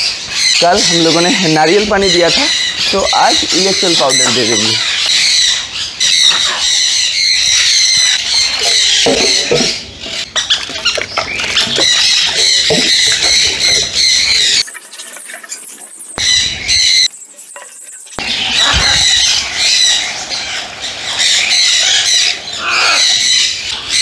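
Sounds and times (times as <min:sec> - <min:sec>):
parrots squawking and chattering: 0:00.0 - 0:24.0
water stirred in plastic bucket: 0:08.6 - 0:16.1.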